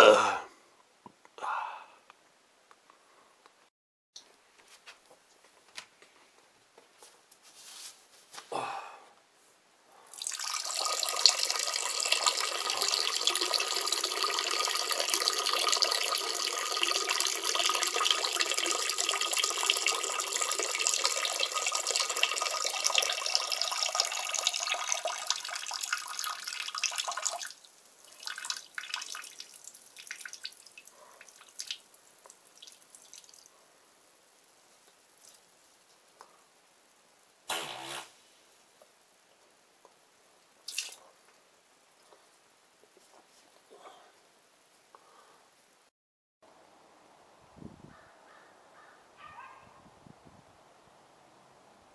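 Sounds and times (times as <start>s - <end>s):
water pouring: 10.1s - 33.5s, 40.6s - 41.1s
water drips and splashes: 10.1s - 33.6s, 40.6s - 41.1s.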